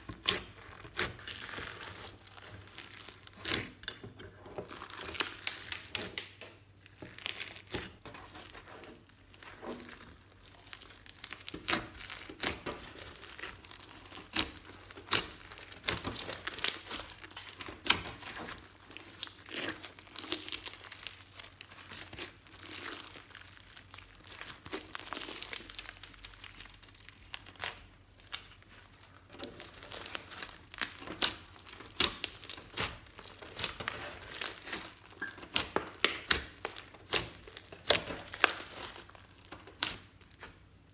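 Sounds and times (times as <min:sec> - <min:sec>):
slime crackling and clicking: 0:29.4 - 0:40.6.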